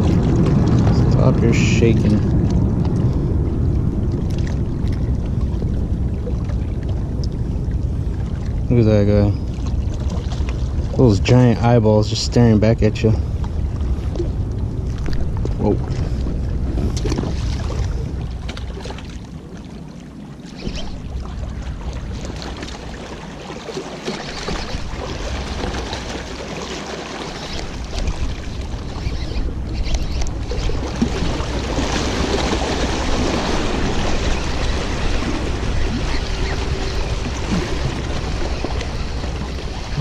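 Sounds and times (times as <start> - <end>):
wind buffeting microphone: 0.0 - 19.8
water washing against rocks: 30.3 - 40.0.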